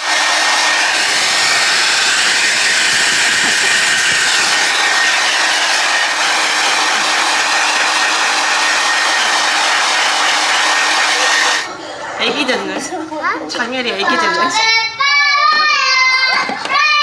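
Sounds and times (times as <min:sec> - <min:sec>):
hair dryer blowing: 0:00.0 - 0:11.7.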